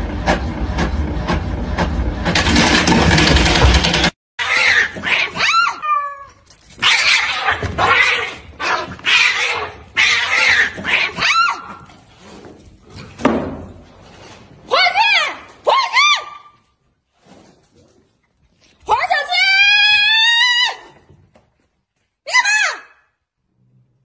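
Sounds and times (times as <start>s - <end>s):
cats yowling: 4.4s - 11.9s.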